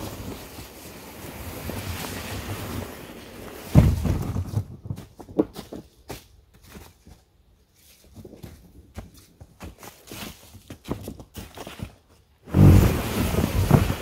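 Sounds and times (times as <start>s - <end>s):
heavy thump: 3.7s - 4.7s
wind buffeting microphone: 12.5s - 14.0s.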